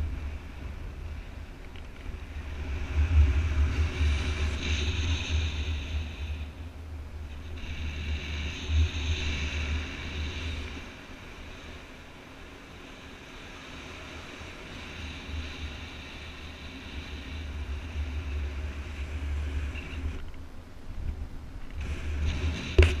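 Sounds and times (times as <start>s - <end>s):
wind rushing over microphone: 0.0s - 23.0s.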